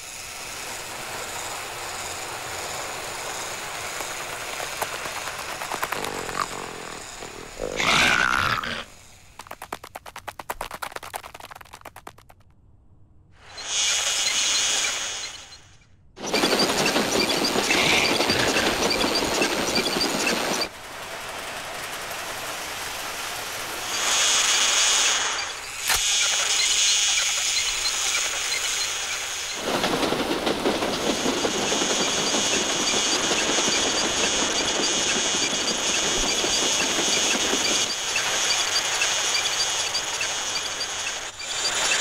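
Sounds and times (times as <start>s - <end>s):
toy steam locomotive hissing: 0.0s - 9.3s, 13.4s - 42.0s
high squealing tone: 4.8s - 8.9s.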